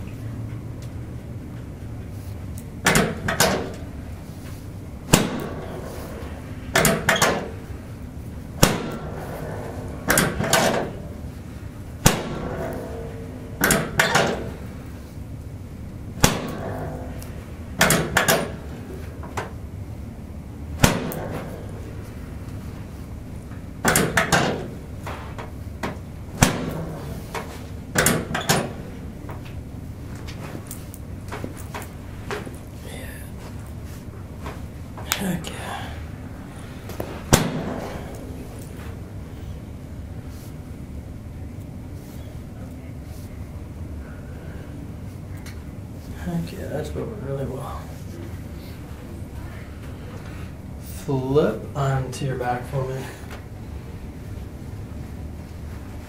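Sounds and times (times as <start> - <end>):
sharp back cracks: 5.1 - 5.8, 8.6 - 10.9, 12.0 - 12.9, 20.8 - 21.8, 26.4 - 27.2, 37.3 - 38.6.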